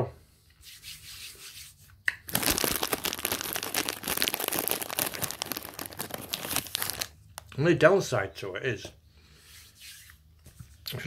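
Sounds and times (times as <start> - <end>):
plastic packaging crinkling: 2.2 - 7.5.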